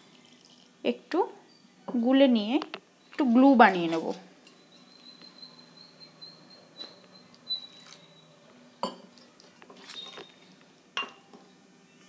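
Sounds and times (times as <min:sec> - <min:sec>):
spoon scraping steel bowl: 0:03.1 - 0:08.2, 0:08.8 - 0:11.3
spoon clinking on steel: 0:08.8 - 0:10.4, 0:11.0 - 0:11.4.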